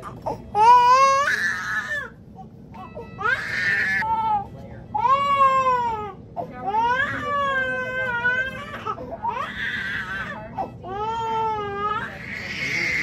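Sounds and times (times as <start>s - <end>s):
baby crying in wails: 0.0s - 2.2s, 2.8s - 4.4s, 5.0s - 13.0s.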